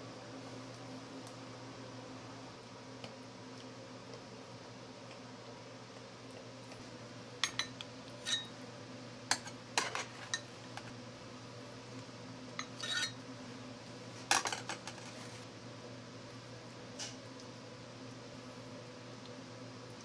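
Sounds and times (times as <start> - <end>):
steady low hum: 0.0 - 20.0
metal utensils clinking on dishes: 9.3 - 10.5.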